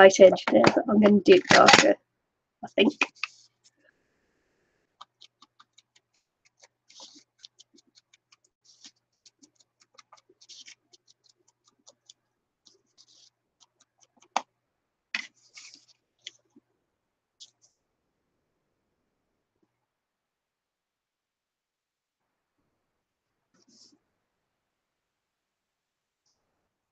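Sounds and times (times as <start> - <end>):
ink pad dabbing paper: 2.6 - 3.7, 5.0 - 14.5
paper rustling: 2.8 - 3.8, 5.0 - 14.4, 15.2 - 16.6.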